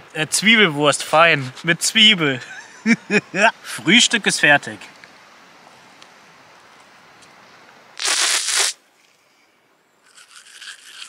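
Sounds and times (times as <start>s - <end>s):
faint steady hiss: 0.0s - 11.0s
biting into bread roll: 8.0s - 8.8s, 10.1s - 11.0s
toothbrush scrubbing teeth: 10.1s - 11.0s.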